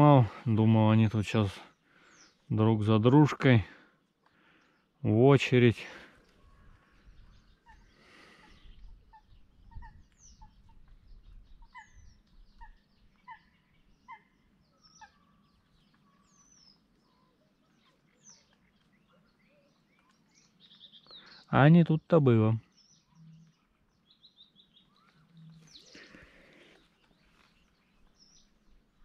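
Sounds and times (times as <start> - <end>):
faint bird calls: 5.9 - 21.6, 22.6 - 29.0.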